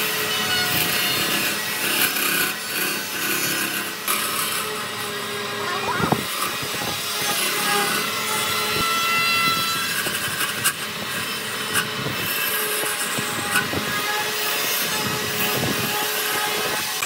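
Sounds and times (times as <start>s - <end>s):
wood lathe cutting hiss: 0.0s - 17.0s.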